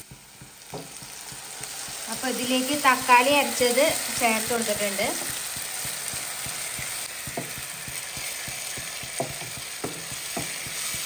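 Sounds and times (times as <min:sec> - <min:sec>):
food sizzling in oil: 0:00.0 - 0:11.0
spatula scraping a pan: 0:05.2 - 0:11.0.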